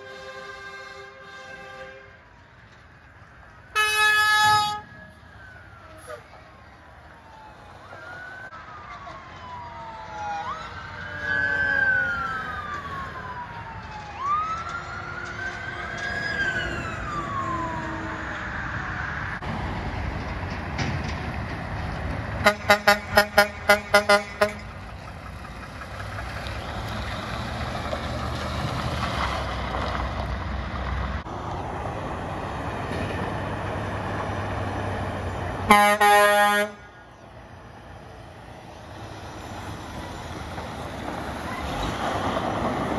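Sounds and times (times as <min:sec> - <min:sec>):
air horn toots: 0:00.0 - 0:02.1, 0:03.8 - 0:04.9, 0:22.4 - 0:24.6, 0:35.7 - 0:36.9
heavy trucks passing: 0:00.0 - 0:42.9
siren wailing: 0:03.6 - 0:19.4.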